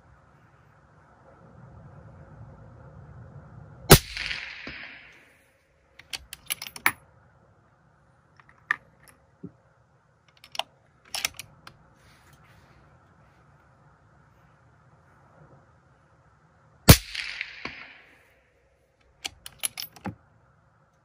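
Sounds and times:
suppressed rifle shot: 3.9 - 5.2, 16.9 - 18.2.

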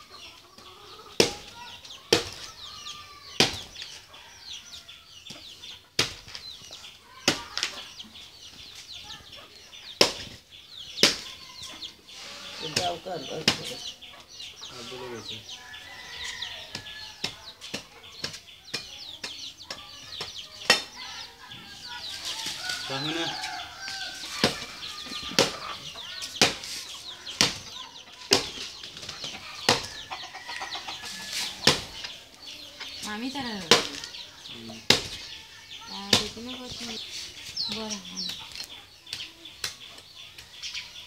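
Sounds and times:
birds chirping: 0.0 - 41.0
machete chopping coconut husk: 1.2 - 2.5, 3.4 - 3.8, 6.0 - 6.4, 11.0 - 11.3, 12.6 - 13.8, 26.4 - 27.7, 31.4 - 32.0, 34.8 - 35.2.

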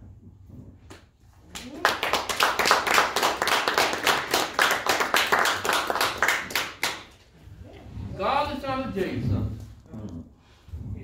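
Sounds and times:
congregation hand-clapping: 1.5 - 7.3.

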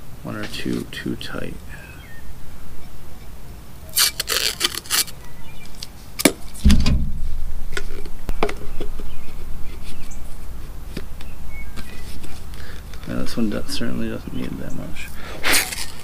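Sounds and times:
sharp knock: 6.6 - 7.5
heavy thump: 6.6 - 7.8.

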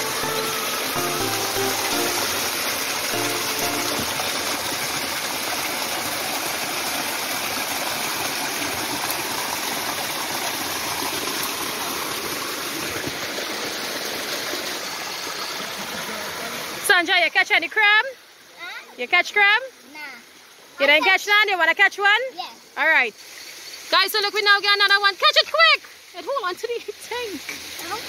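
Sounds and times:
faint music: 0.0 - 4.8
waterfall rushing over rocks: 0.0 - 15.4.

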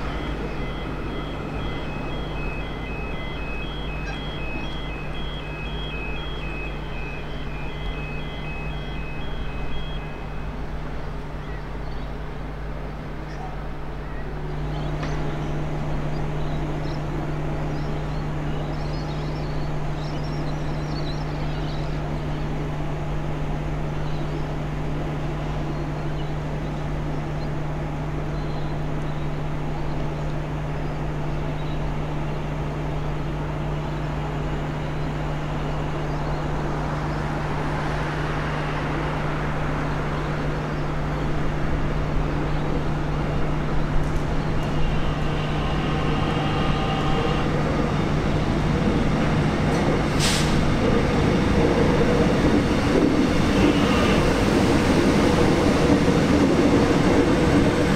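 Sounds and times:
train wheels on rails: 0.0 - 57.9.

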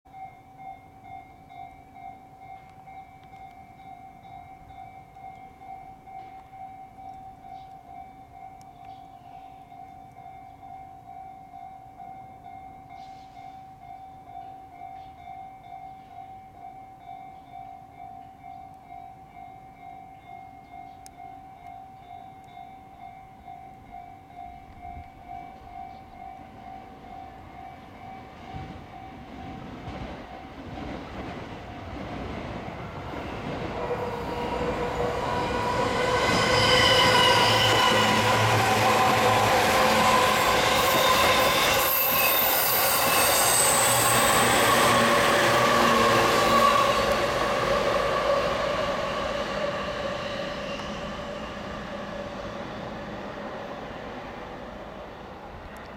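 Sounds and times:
train rumble and wheel noise: 20.6 - 55.9
pitched train whine: 23.0 - 55.9
level crossing alarm ringing: 33.9 - 50.3.

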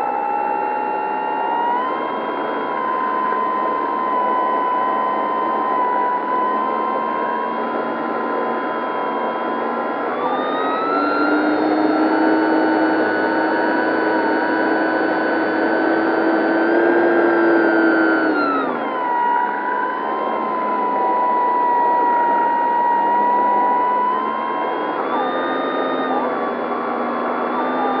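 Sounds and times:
electric motor whine: 0.0 - 28.0.

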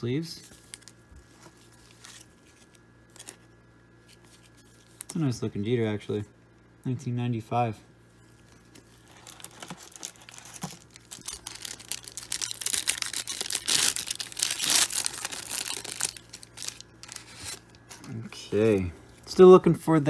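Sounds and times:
foil wrapper tearing and crinkling: 8.7 - 17.8.

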